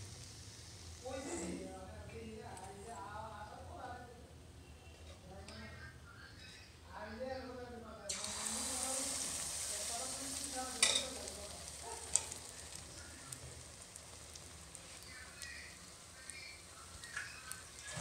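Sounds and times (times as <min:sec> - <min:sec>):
batter sizzling in hot oil: 0:00.0 - 0:03.0, 0:08.1 - 0:18.0.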